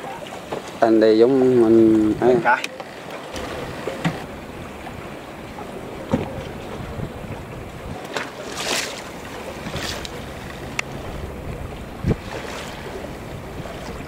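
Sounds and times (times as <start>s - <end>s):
choppy sea water washing: 0.0s - 14.0s
wind on microphone: 3.4s - 8.1s, 9.2s - 14.0s.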